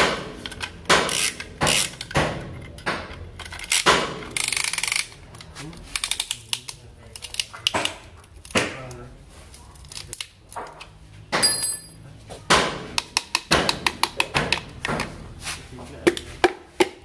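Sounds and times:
metal clanks and knocks: 0:11.3 - 0:12.0
ringing metal clang: 0:11.4 - 0:12.0.

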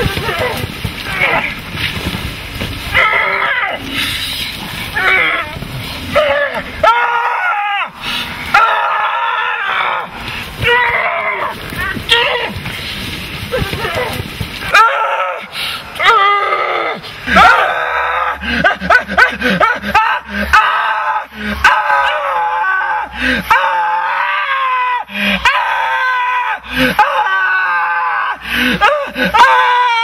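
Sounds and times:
person screaming: 0:13.5 - 0:30.0.

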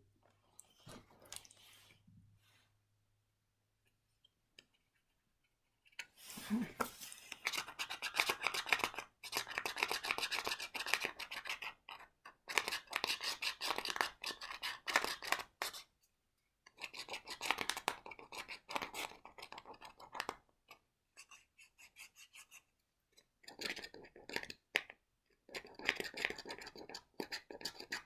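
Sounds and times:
scratching on plastic card: 0:06.8 - 0:15.9, 0:25.5 - 0:28.0.

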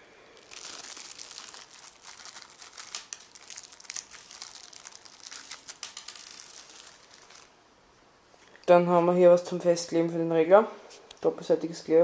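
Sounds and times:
plastic bag crinkling: 0:00.3 - 0:07.6.

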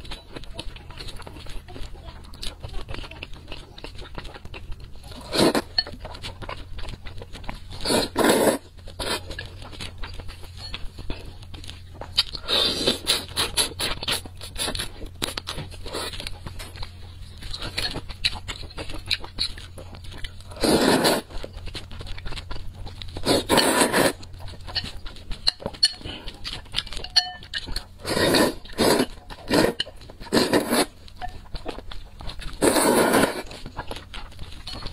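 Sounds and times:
noodles being slurped: 0:00.0 - 0:06.7, 0:07.6 - 0:09.4, 0:12.2 - 0:16.7, 0:20.4 - 0:22.3, 0:23.2 - 0:24.8, 0:25.4 - 0:34.7
wet chewing: 0:00.0 - 0:34.9.

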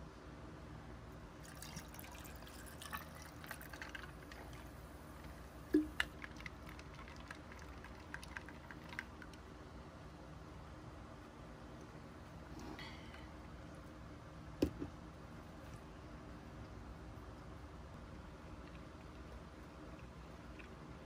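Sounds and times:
sparkling water pouring over ice: 0:01.4 - 0:04.5.

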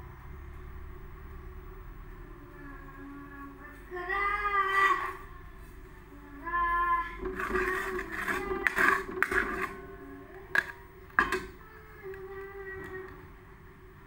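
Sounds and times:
metal spatula scraping wok: 0:07.2 - 0:11.6.

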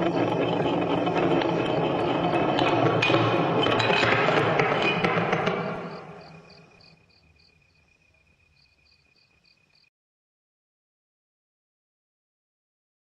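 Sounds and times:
crickets chirping: 0:00.0 - 0:09.9.

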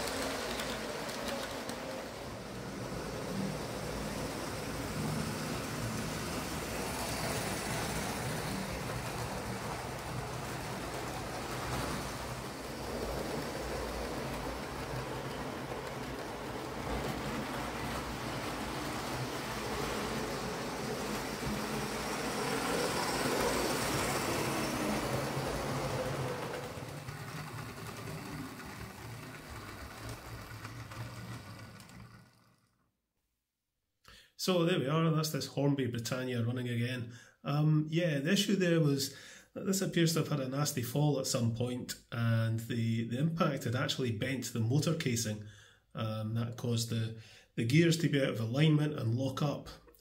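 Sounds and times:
model train motor hum: 0:00.0 - 0:32.8
wheels rumbling on rails: 0:00.0 - 0:32.8.

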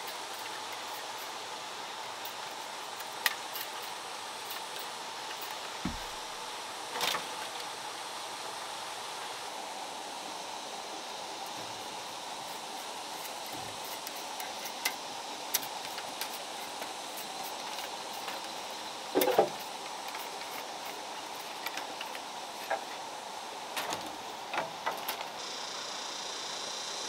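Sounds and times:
knife shaving bamboo strips: 0:00.0 - 0:06.4, 0:11.6 - 0:22.9
steady rushing background noise: 0:00.0 - 0:27.0.

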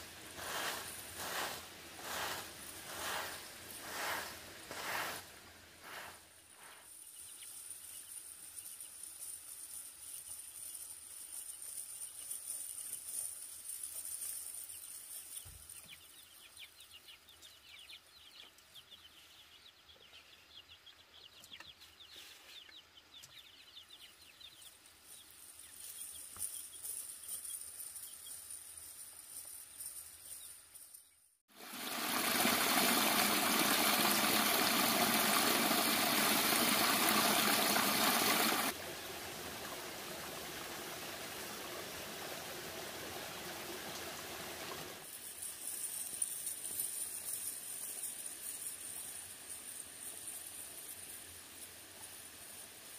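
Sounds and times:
stream water rushing: 0:31.5 - 0:45.0.

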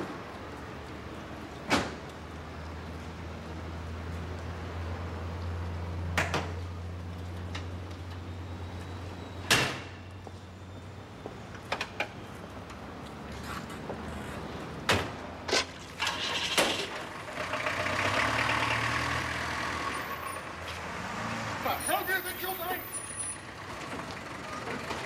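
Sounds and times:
car engine idling: 0:17.0 - 0:19.7.

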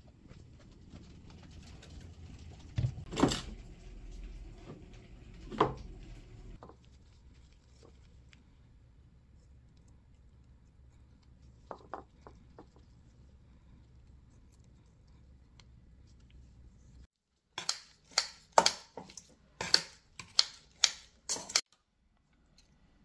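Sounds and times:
kitchen scissors clicking: 0:17.6 - 0:21.6.

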